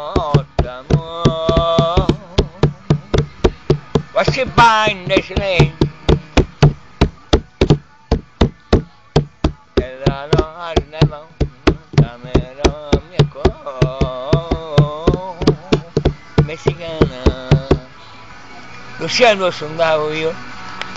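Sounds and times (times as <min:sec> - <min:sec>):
man singing loudly: 0:00.0 - 0:06.6, 0:09.5 - 0:17.9
sharp knocking beat: 0:00.0 - 0:17.9.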